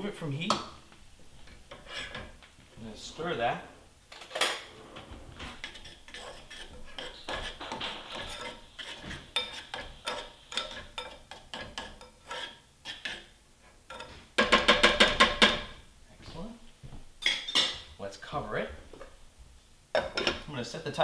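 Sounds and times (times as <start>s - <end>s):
utensil scraping saucepan: 1.4s - 2.4s, 4.2s - 15.7s.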